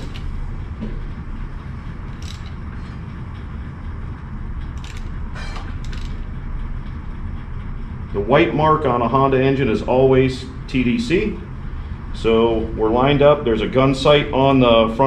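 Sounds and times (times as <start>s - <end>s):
low rumble: 0.0s - 15.0s
wrench clicking: 2.1s - 2.6s, 4.8s - 6.3s.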